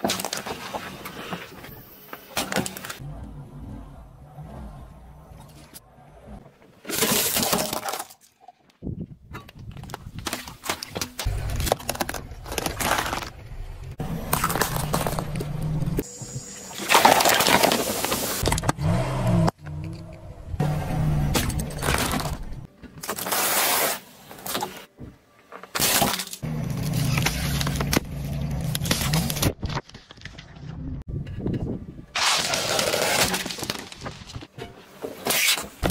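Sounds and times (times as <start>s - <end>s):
cartons crackling and popping: 9.6s - 16.0s, 32.2s - 34.6s
tyre crushing objects: 9.7s - 15.8s
tyre crunching chips: 11.2s - 13.4s.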